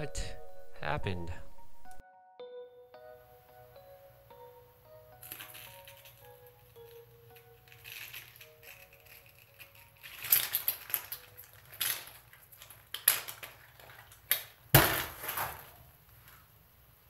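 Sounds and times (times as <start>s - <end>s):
sharp crack: 12.8s - 15.9s.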